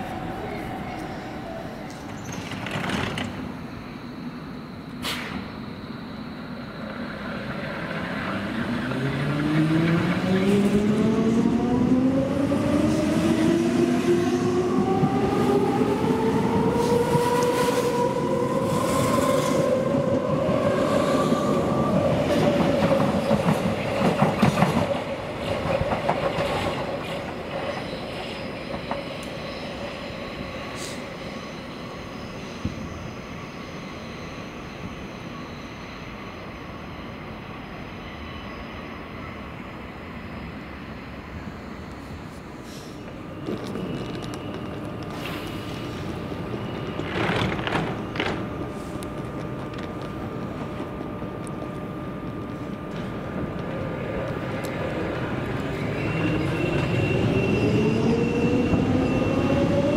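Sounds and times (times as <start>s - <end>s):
train wheels clattering on rails: 1.9s - 3.6s, 21.8s - 31.0s, 43.0s - 59.9s.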